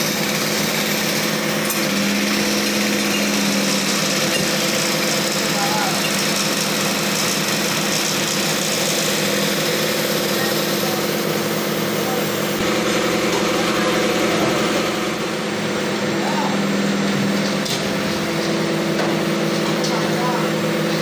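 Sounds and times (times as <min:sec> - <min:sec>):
crane engine running: 0:00.0 - 0:21.0.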